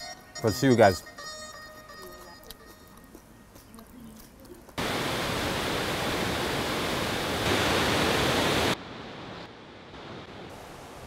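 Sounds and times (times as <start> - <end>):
quiet outdoor ambience: 0.0 - 11.0
water rushing over weir: 4.8 - 11.0.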